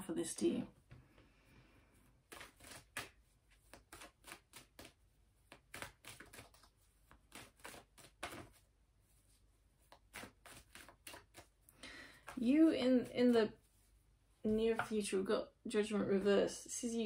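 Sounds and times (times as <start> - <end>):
cards being shuffled: 2.2 - 8.7, 9.8 - 12.4.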